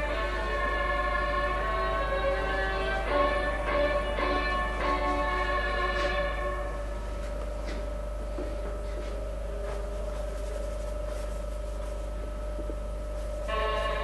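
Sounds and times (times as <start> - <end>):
electrical hum: 0.0 - 14.0
paint brush scratching on canvas: 9.7 - 12.2, 13.1 - 14.0.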